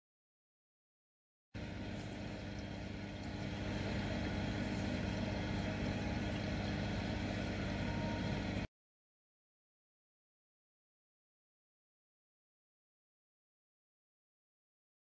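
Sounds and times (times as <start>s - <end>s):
small motor humming: 1.6s - 8.7s.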